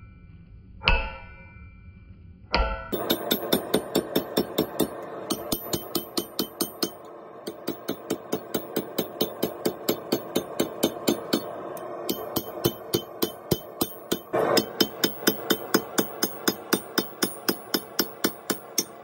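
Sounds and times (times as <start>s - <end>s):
hammer striking metal on anvil: 0.8s - 1.8s, 2.5s - 19.0s.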